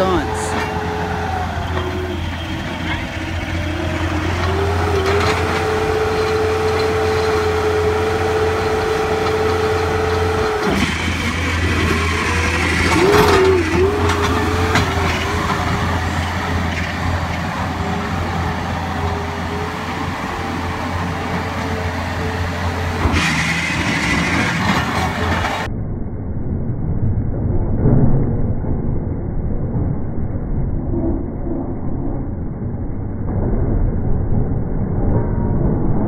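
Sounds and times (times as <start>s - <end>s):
knocks and rattles: 0.0s - 25.7s
loader engine whine: 0.0s - 28.0s.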